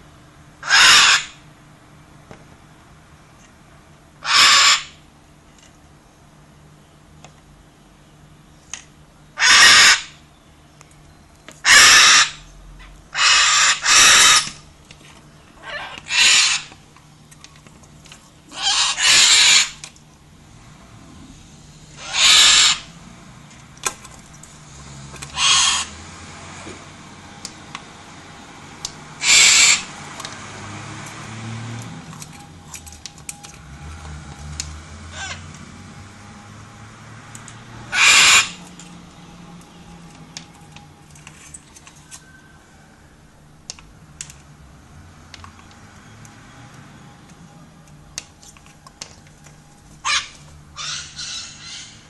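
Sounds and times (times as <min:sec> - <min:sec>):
cockatoo screeching: 0:00.6 - 0:01.4, 0:04.2 - 0:05.0, 0:09.4 - 0:10.2, 0:11.6 - 0:12.4, 0:13.1 - 0:14.6, 0:15.6 - 0:16.7, 0:18.5 - 0:19.8, 0:21.9 - 0:23.0, 0:25.3 - 0:26.0, 0:29.2 - 0:29.9, 0:35.1 - 0:35.4, 0:37.9 - 0:38.6, 0:50.0 - 0:52.0.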